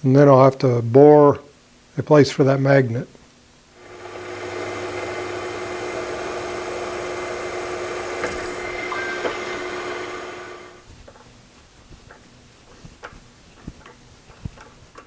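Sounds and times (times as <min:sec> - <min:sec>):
milling machine drilling metal: 0:03.8 - 0:10.8.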